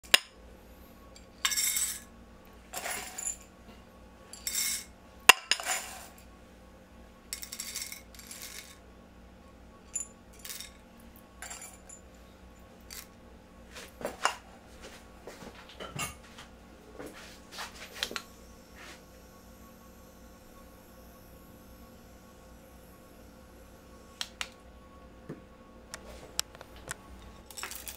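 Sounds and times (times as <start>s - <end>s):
coffee beans rattling on ceramic: 1.3s - 2.0s, 2.7s - 3.4s, 4.4s - 6.2s, 7.4s - 8.8s, 10.0s - 10.8s, 11.4s - 12.0s, 12.9s - 13.1s, 27.4s - 27.9s.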